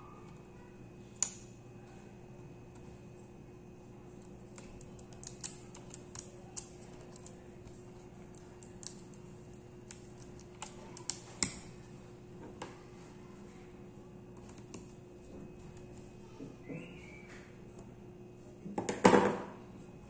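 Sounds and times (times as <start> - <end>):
faint steady hum: 0.0 - 20.0
fingers clicking plastic parts: 4.5 - 7.4, 8.3 - 11.6.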